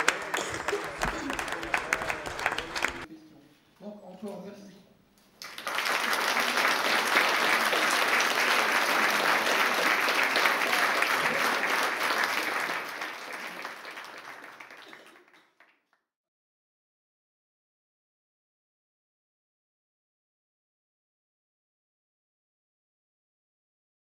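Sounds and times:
audience applauding: 0:00.0 - 0:03.1, 0:05.4 - 0:15.9.

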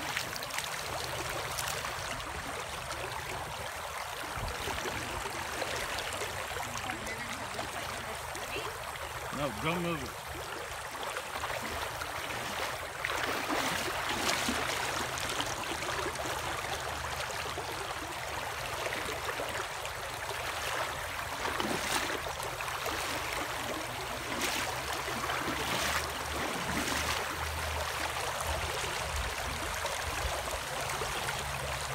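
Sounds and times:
water rushing and splashing: 0:00.0 - 0:31.9.

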